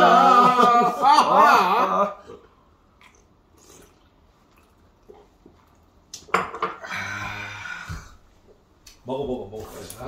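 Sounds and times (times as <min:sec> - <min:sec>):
cups and dishes clattering: 0:06.2 - 0:06.8.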